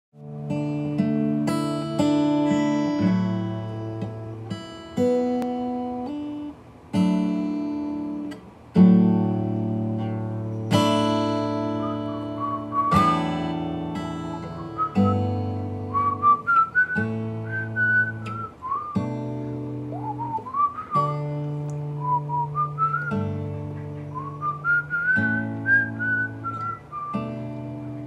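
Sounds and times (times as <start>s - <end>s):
strummed acoustic guitar chords: 0.2s - 28.0s
whistled melody: 10.6s - 19.2s, 19.9s - 28.0s.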